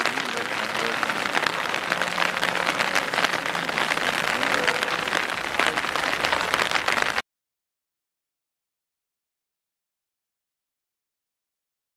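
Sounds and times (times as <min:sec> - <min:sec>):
rain pattering: 0:00.0 - 0:07.2.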